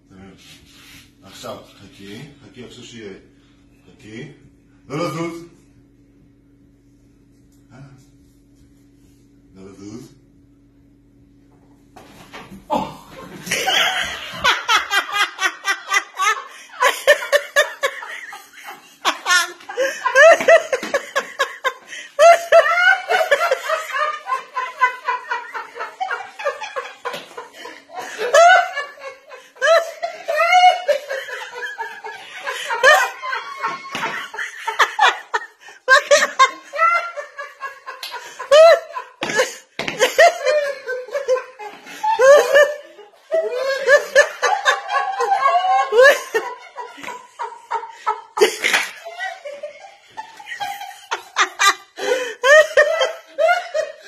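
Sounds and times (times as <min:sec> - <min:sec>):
people laughing: 0:12.7 - 0:54.0.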